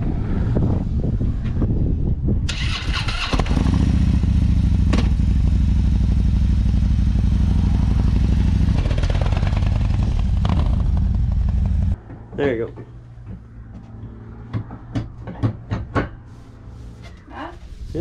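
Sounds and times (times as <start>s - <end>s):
motorcycle engine idling: 3.5s - 12.0s.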